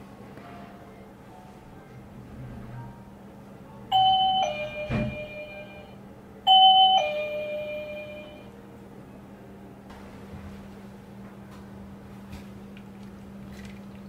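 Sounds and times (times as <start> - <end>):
two-note ding-dong chime: 3.9 - 8.5.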